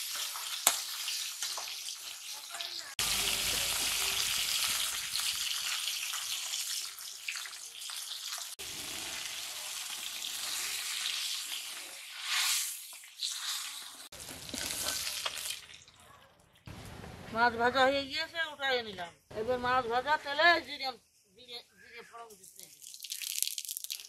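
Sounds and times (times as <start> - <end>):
fish sizzling in oil: 0.0 - 16.0, 22.8 - 24.0.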